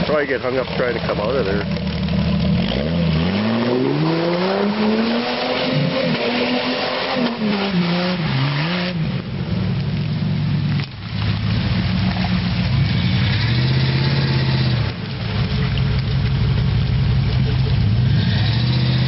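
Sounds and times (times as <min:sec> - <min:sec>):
water and mud splashing: 0:00.0 - 0:19.0
car engine revving hard: 0:02.3 - 0:09.2, 0:12.9 - 0:14.9, 0:18.0 - 0:19.0.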